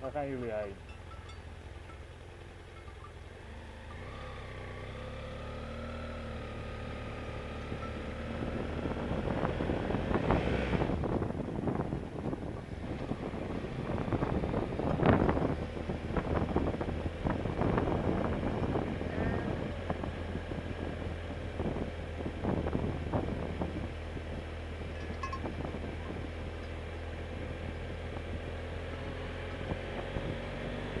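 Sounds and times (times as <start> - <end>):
motorcycle engine droning: 0.0 - 31.0
wind buffeting microphone: 7.7 - 31.0.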